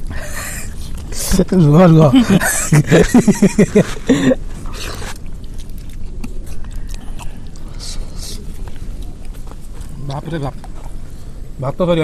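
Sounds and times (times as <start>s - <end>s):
chewing: 3.8s - 11.4s.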